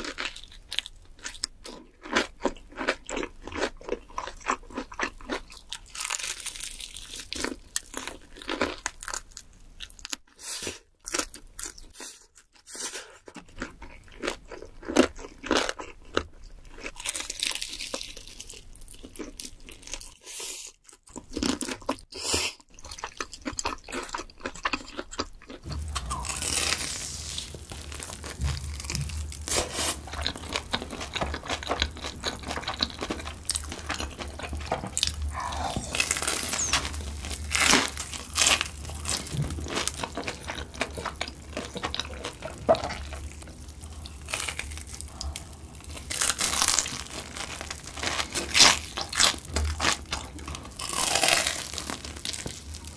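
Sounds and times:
crunching and chewing fried chicken: 0.0s - 52.9s
steady low hum: 25.6s - 46.2s.

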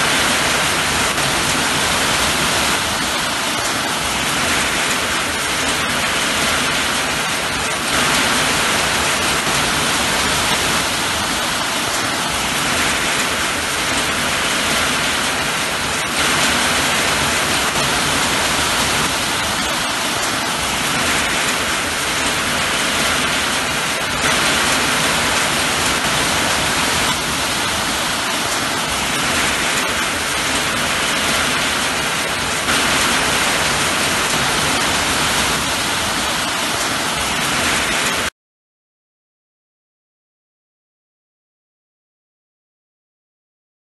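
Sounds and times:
heavy rain: 0.0s - 38.3s.

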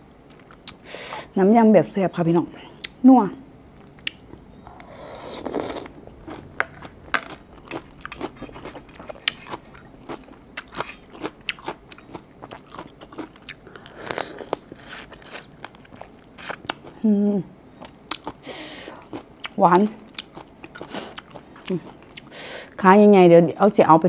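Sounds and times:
chewing: 3.8s - 17.0s, 17.8s - 22.3s
crab shell crunching between teeth: 3.8s - 17.0s.

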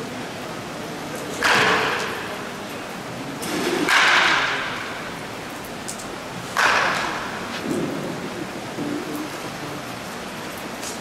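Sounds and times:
baseball bat hitting ball: 6.6s - 7.4s.

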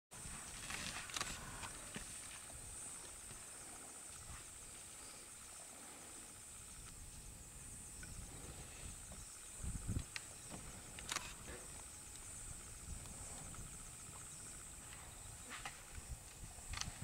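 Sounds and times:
high-pitched insect drone: 0.4s - 17.0s
sharp clicks: 10.9s - 11.4s.

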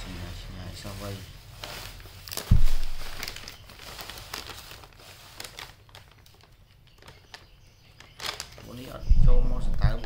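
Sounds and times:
deep thump: 2.5s - 3.1s
plastic tub crinkling and clicking: 5.9s - 8.7s.

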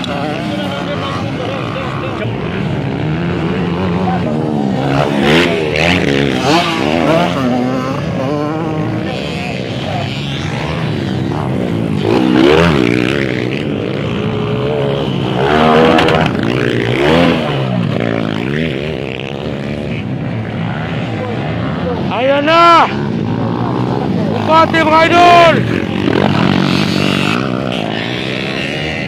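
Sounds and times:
dirt bike engines revving: 0.0s - 29.0s.

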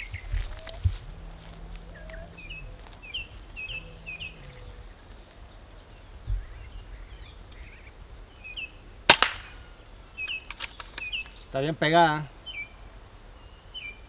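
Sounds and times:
faint low hum: 0.0s - 8.6s
small birds chirping: 0.0s - 8.9s, 9.5s - 14.0s.

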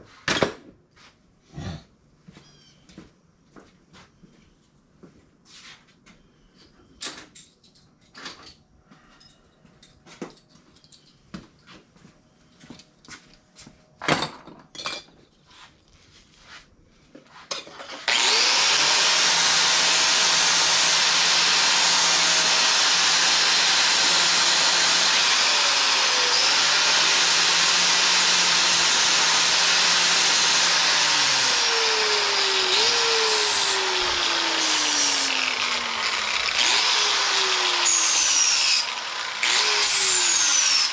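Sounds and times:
power tool whining: 17.9s - 40.9s.

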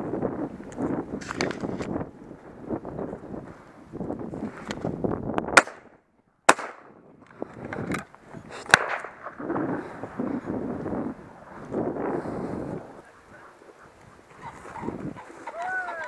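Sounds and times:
loud shotgun shots: 5.6s - 5.8s, 6.5s - 6.9s, 8.7s - 9.4s.

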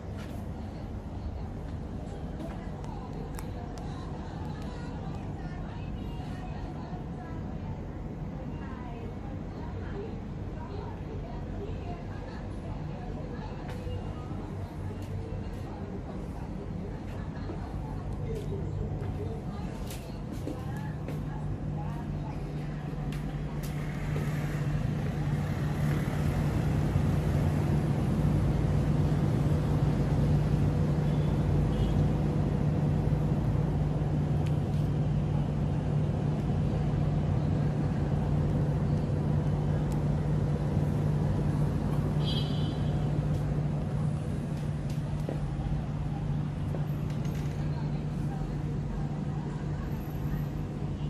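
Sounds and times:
road rumble: 10.9s - 51.0s.

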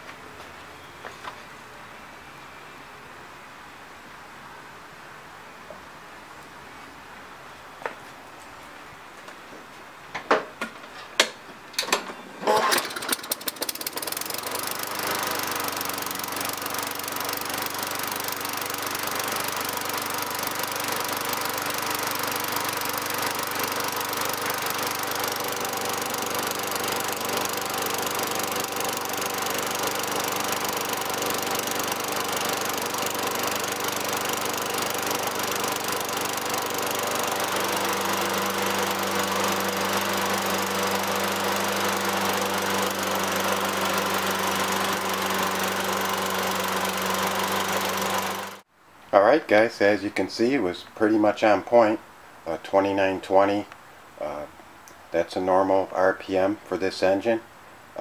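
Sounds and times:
lawnmower engine running: 12.4s - 48.6s.

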